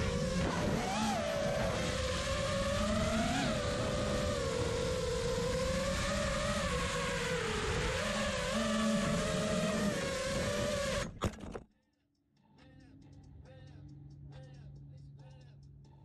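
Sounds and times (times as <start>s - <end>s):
drone motors whining: 0.0s - 11.4s.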